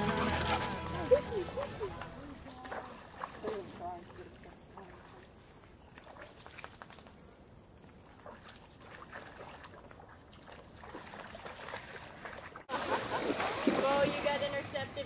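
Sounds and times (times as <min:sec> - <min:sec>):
dogs splashing in shallow water: 0:00.0 - 0:07.1, 0:07.8 - 0:15.0.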